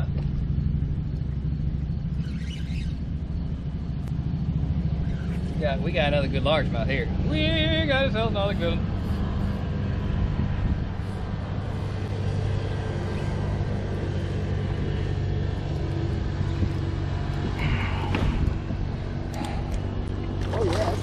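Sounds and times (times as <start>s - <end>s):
water splashing: 19.4s - 21.0s.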